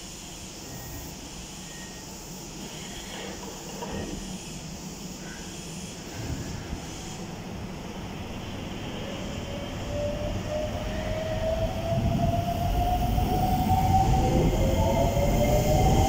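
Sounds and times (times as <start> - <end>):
train wheels rumbling: 2.6 - 16.0.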